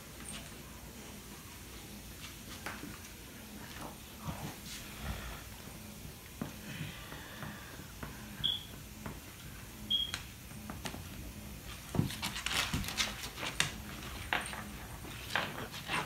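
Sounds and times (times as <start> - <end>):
dogs scuffling on hardwood floor: 2.1 - 5.8, 10.1 - 16.0.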